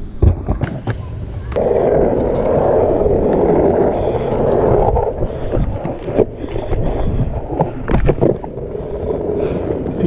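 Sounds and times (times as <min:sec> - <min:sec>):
skateboard wheels rolling on asphalt: 0:00.6 - 0:10.0
wind on microphone: 0:00.6 - 0:10.0.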